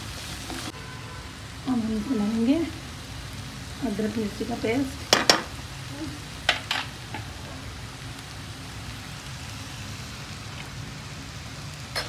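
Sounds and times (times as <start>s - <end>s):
vegetables sizzling in oil: 0.0s - 12.0s
utensil tapping on pan: 5.1s - 5.5s, 6.5s - 7.3s.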